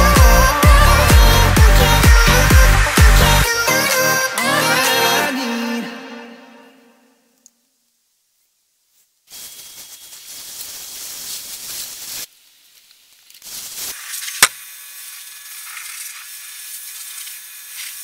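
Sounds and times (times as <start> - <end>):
pressure washer jet spraying: 13.5 - 18.0.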